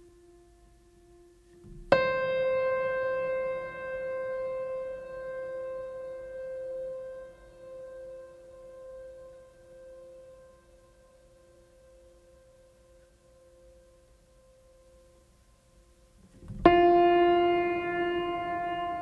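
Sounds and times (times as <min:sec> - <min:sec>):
struck piano note: 0:16.4 - 0:19.0.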